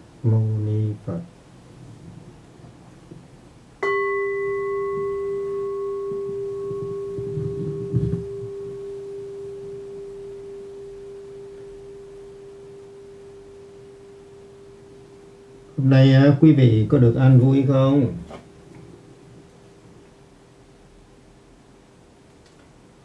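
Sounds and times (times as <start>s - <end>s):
bowl bell ringing: 3.8s - 16.0s.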